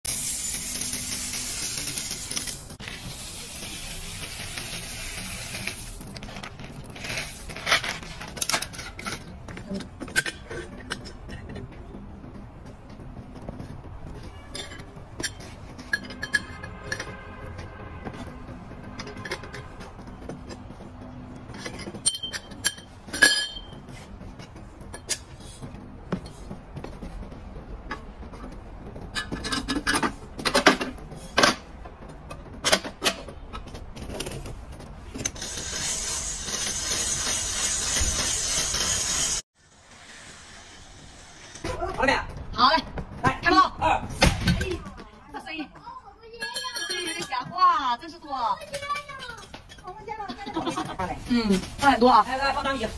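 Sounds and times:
metal clinks and knocks: 12.4 - 27.1, 46.3 - 50.9.

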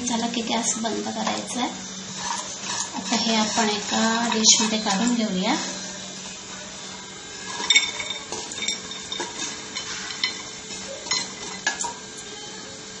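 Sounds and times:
utensil scraping and clinking on a pan: 1.0 - 5.8, 7.4 - 12.0.

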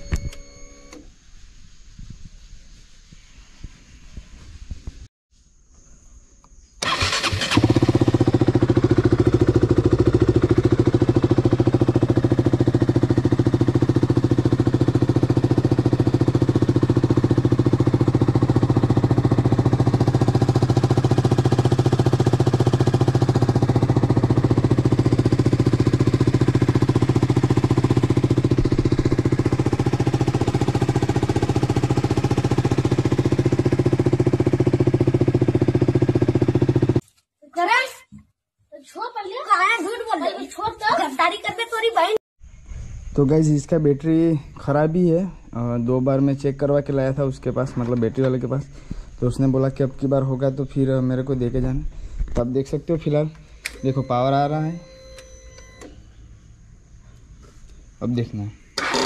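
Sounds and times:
motorcycle engine idling: 6.8 - 37.0, 45.6 - 57.9
motorcycle engine starting: 6.8 - 37.0, 45.8 - 56.3, 58.7 - 59.0.

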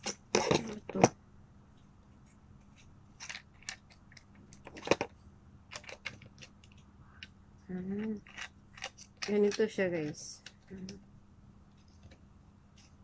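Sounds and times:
plastic clicks and handling rattles: 3.2 - 5.1, 5.7 - 7.3, 8.0 - 11.0.

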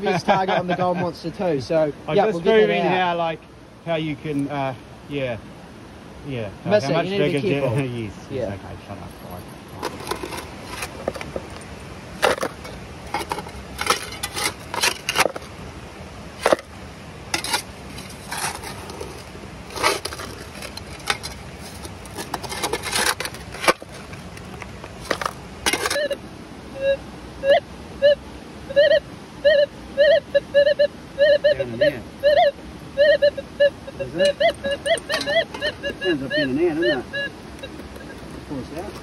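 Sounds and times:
shovel scraping gravel and soil: 9.8 - 15.5, 16.4 - 16.7, 17.4 - 26.2, 34.9 - 35.7
metal detector beeping: 13.1 - 15.4, 25.1 - 26.2, 26.8 - 39.0.

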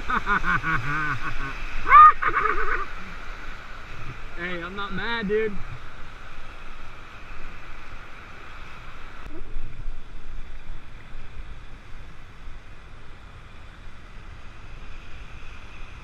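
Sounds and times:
river rapids rushing: 0.0 - 9.3.

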